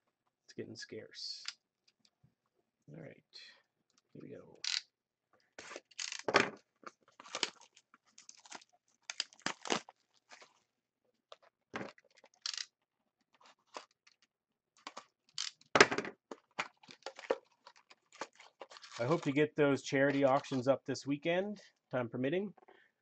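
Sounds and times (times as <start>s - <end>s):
wrapper crinkling and tearing: 5.6s - 10.6s, 13.3s - 15.7s, 16.3s - 19.4s.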